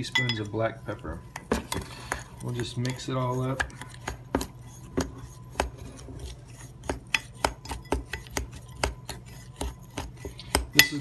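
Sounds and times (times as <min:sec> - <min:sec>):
metal utensil clinking on glass bowl: 0:00.0 - 0:00.6, 0:10.8 - 0:11.0.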